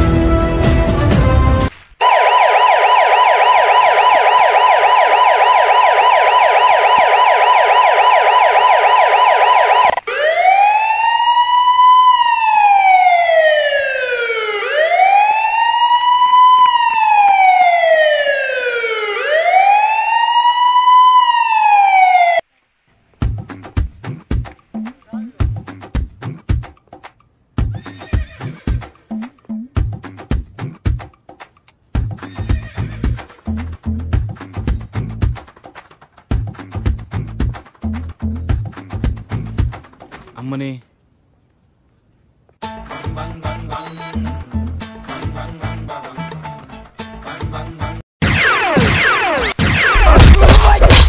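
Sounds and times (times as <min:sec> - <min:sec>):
police siren: 0:02.0 - 0:22.4, 0:48.2 - 0:50.9.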